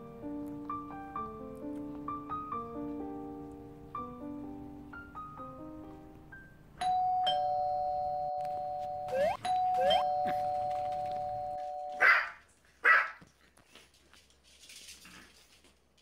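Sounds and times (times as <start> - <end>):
two-tone doorbell chime: 6.8 - 12.0
small dogs barking: 12.0 - 13.2.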